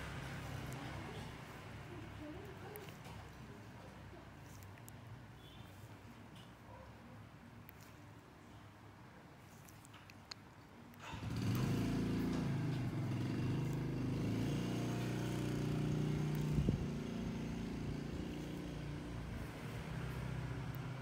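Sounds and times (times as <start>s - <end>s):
engine running: 11.1s - 21.0s.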